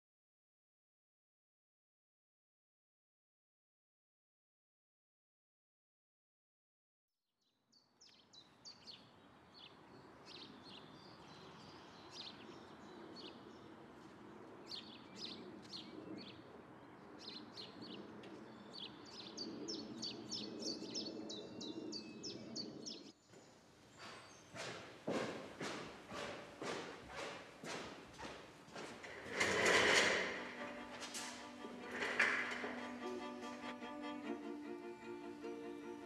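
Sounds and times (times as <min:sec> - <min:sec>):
small birds chirping: 0:07.4 - 0:29.0
outdoor background hush: 0:08.1 - 0:36.0.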